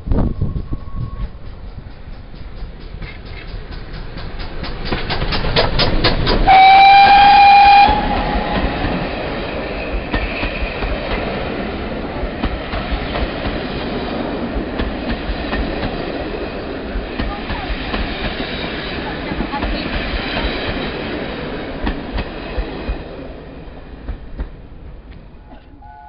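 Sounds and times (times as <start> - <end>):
train wheels clicking over rail joints: 0.0 - 25.9
steam locomotive exhaust beats: 0.0 - 26.0
steam whistle blast: 6.5 - 8.7, 25.8 - 26.0.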